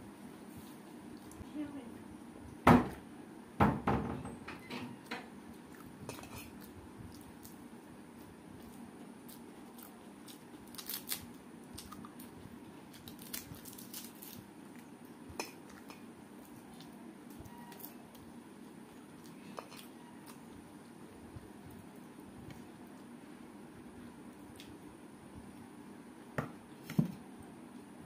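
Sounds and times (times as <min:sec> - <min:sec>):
papad crackling: 0:08.6 - 0:14.9.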